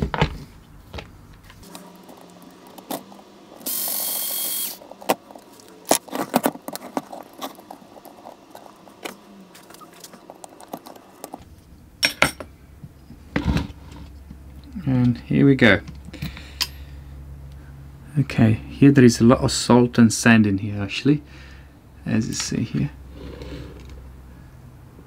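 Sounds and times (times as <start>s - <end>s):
clicks and scrapes of small parts: 1.4s - 11.4s.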